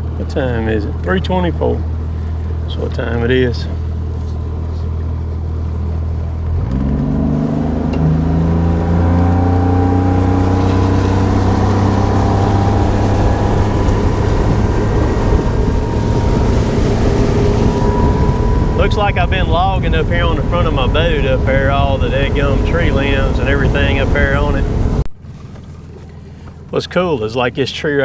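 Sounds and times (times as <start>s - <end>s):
outboard motor running: 0.0s - 28.0s.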